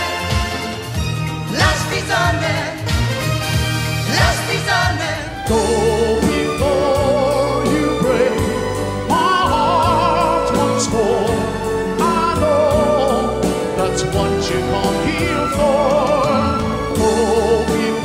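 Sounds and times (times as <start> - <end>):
band backing music: 0.0 - 18.0
man singing pop ballad: 4.1 - 18.0.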